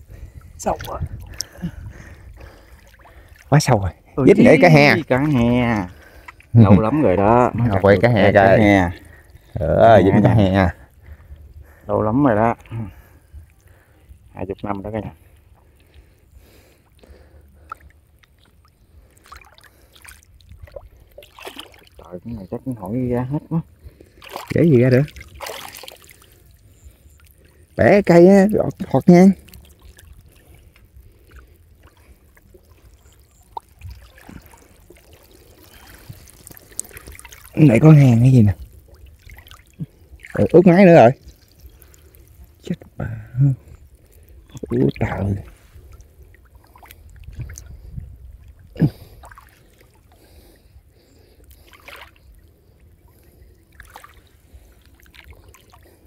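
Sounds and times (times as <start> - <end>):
water lapping and sloshing: 0.0 - 56.0
sharp splashes: 0.6 - 6.6, 16.8 - 22.2, 24.0 - 47.8, 48.4 - 50.6, 51.5 - 52.4, 53.1 - 56.0.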